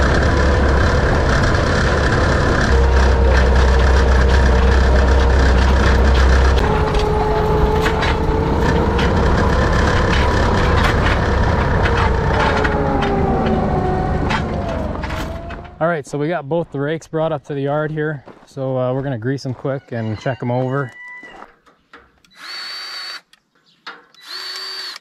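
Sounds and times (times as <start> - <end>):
hay rake clanking and rattling: 0.0 - 15.8
tractor engine running: 0.0 - 16.8.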